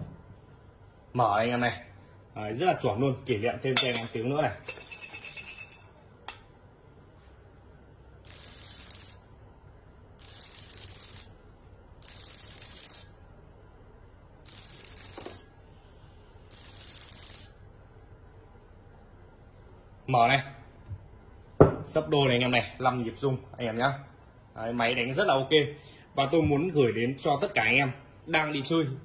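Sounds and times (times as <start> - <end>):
device vibration buzzing: 8.2 - 9.3, 10.2 - 13.2, 14.4 - 15.6, 16.5 - 17.6.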